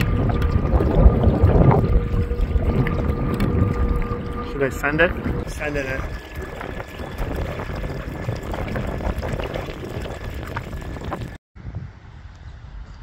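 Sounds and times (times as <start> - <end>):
faint steady motor whine: 0.0 - 9.6
water rushing along canoe hull: 0.0 - 11.4
wind buffeting microphone: 0.0 - 13.0.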